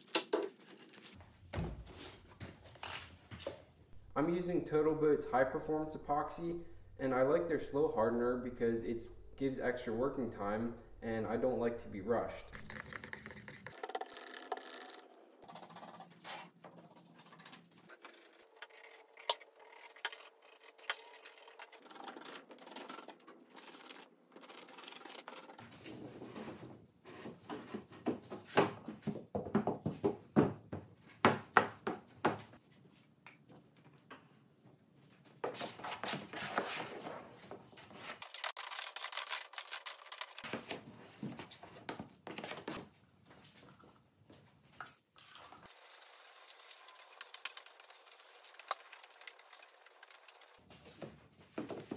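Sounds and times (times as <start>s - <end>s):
stir stick scraping plastic cup: 12.4s - 15.0s.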